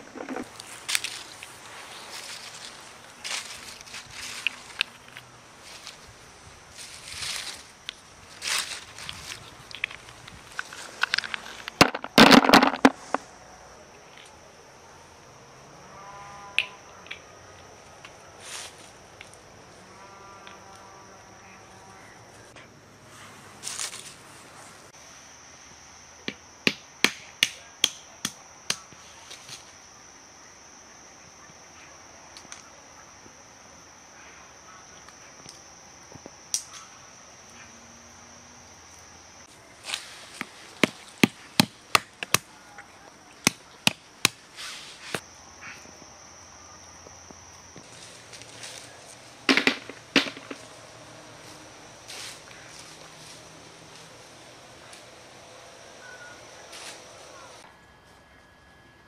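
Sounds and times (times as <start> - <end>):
high insect trill: 0.0 - 59.0
walnuts being cracked: 10.6 - 13.2, 49.5 - 50.6.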